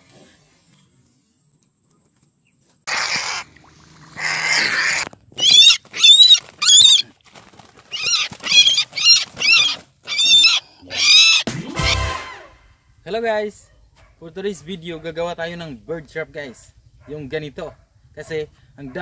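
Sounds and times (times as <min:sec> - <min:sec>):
high wavering animal squeals: 0:02.9 - 0:03.5, 0:04.1 - 0:07.0, 0:07.9 - 0:11.5.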